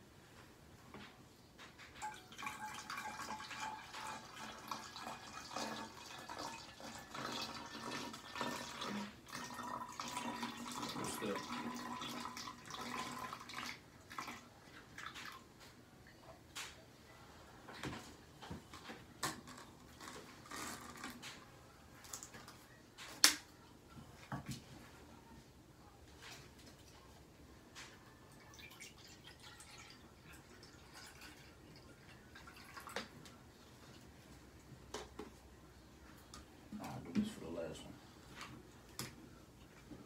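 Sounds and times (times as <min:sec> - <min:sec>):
water pouring into plastic bottle: 0:02.0 - 0:15.4, 0:28.4 - 0:33.1.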